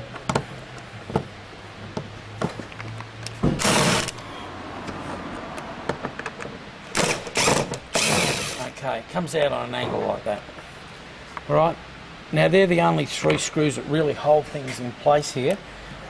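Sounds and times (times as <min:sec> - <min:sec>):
cordless power screwdriver running: 0:03.6 - 0:04.2, 0:07.0 - 0:08.6.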